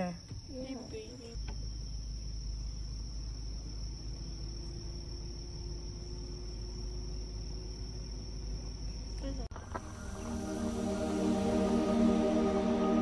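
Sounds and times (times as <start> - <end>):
insects trilling: 0.0 - 13.0
low even rumble: 9.5 - 13.0.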